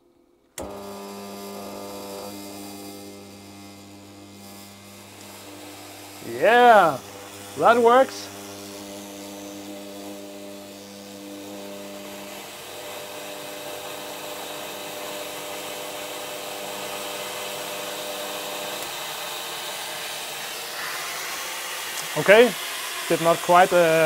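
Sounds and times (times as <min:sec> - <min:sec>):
fog cannon hissing: 0:05.1 - 0:08.4, 0:18.2 - 0:24.0.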